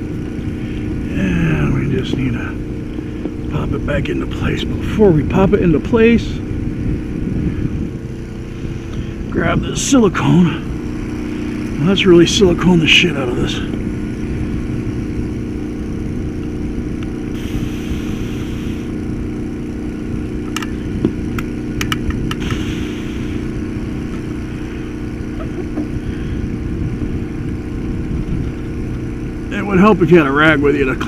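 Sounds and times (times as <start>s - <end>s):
motor hum: 0.0s - 31.0s
short hiss: 17.4s - 19.0s, 22.4s - 23.4s
caulking gun clicking: 20.5s - 22.6s.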